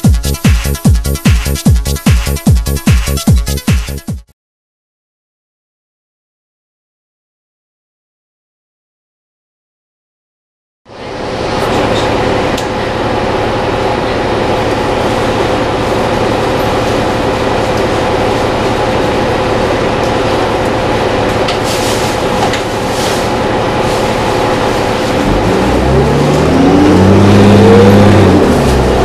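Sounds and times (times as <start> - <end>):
bus cabin hum: 10.9 - 29.0
diesel bus engine pulling away: 10.9 - 29.0.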